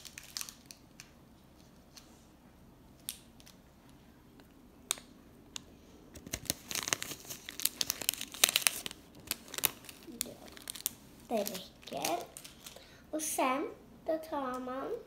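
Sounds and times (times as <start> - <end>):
plastic packet crinkling: 0.0 - 1.8, 6.1 - 12.9.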